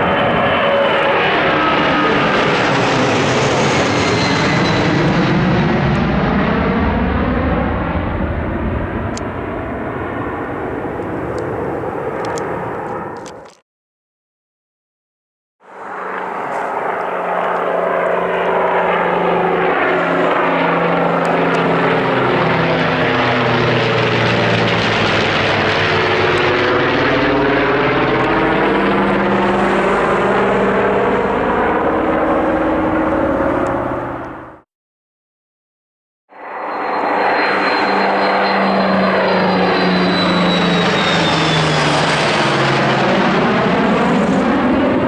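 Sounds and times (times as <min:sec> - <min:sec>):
jet engines passing overhead: 0:00.0 - 0:13.6, 0:15.6 - 0:34.6, 0:36.3 - 0:45.0.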